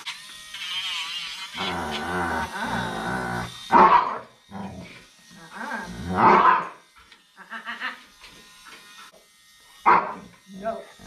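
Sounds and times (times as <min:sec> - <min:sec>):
dog growling: 0:01.6 - 0:06.7
dog barking sharply: 0:09.9 - 0:10.2.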